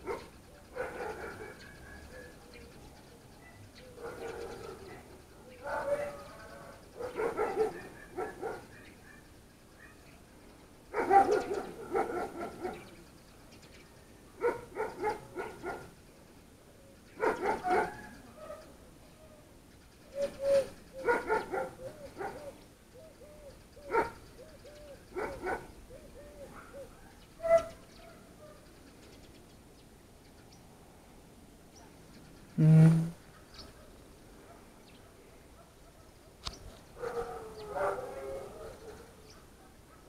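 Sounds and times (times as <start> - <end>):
dog barking: 0.0 - 2.0, 4.0 - 5.0, 5.6 - 6.3, 7.0 - 10.0, 10.9 - 12.9, 14.4 - 15.9, 17.2 - 18.7, 21.0 - 22.4, 23.9 - 24.2, 25.2 - 25.7, 26.5 - 28.6, 33.3 - 36.4, 37.0 - 40.0.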